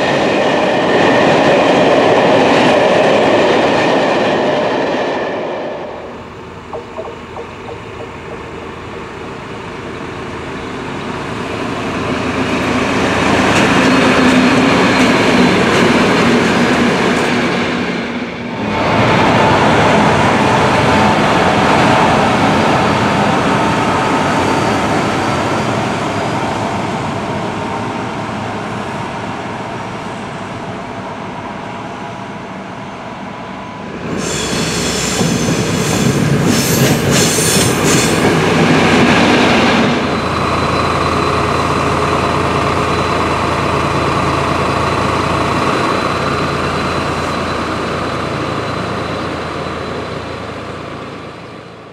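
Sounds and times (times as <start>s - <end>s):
train wheels on rail: 0.0s - 51.9s
locomotive engine noise: 1.8s - 17.1s, 34.0s - 51.9s.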